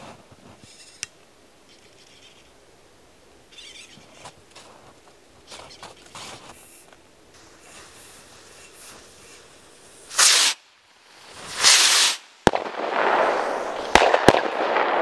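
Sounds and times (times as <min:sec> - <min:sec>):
firework fuses fizzing: 0:05.4 - 0:15.0.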